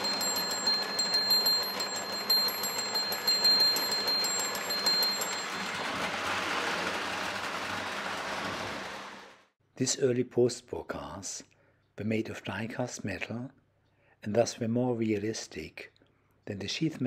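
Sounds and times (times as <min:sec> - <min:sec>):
thin high steady tone: 0:00.0 - 0:06.2
toy train wheels clicking: 0:00.0 - 0:09.4.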